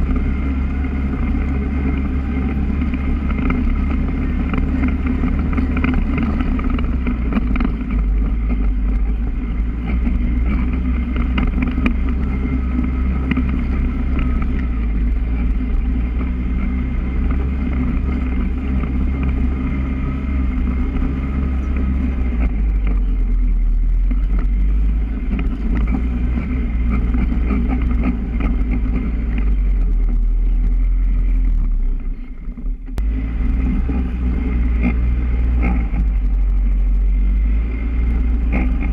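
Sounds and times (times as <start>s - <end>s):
quad bike engine running: 0.0s - 38.9s.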